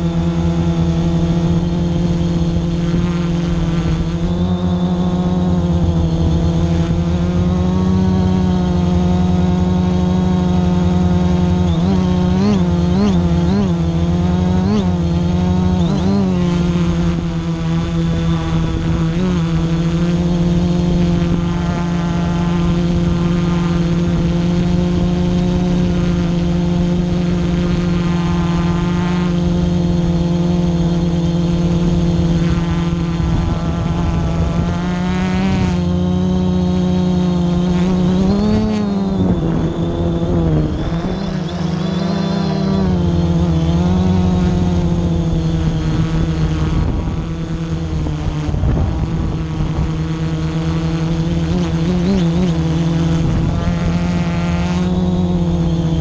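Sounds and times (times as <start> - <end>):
drone propellers humming: 0.0 - 56.0.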